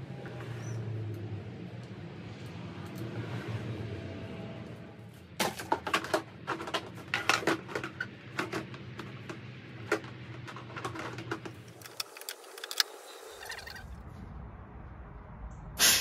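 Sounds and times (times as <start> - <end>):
plastic panels clicking and rattling: 5.4 - 13.7.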